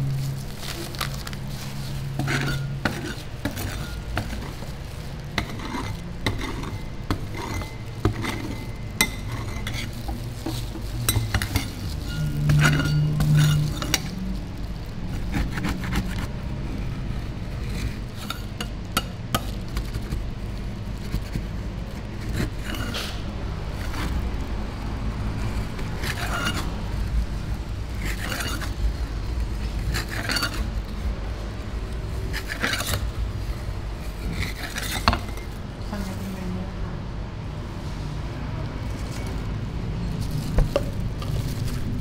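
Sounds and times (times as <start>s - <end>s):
metal spatulas scraping ice cream: 0.4s - 14.2s, 15.1s - 20.2s, 20.9s - 24.2s, 25.4s - 27.2s, 27.9s - 31.2s, 32.0s - 33.3s, 34.0s - 35.6s.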